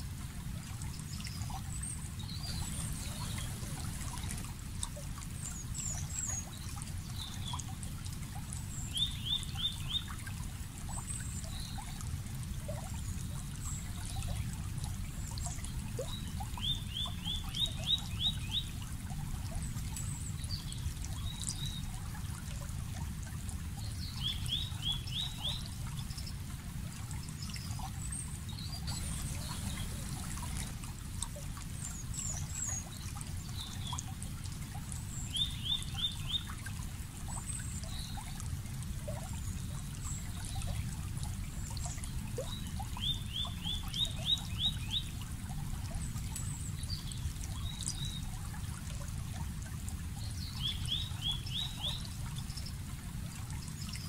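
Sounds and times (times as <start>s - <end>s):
water trickling: 0.0s - 54.0s
bird singing rising notes: 28.9s - 30.8s
faint high bird chirps: 28.9s - 30.8s.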